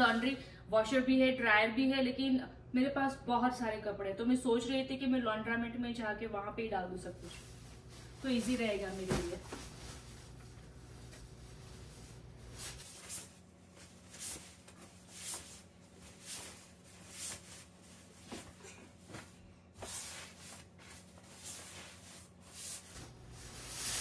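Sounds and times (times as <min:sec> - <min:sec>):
fabric bag rustling and swishing: 0:07.2 - 0:24.0.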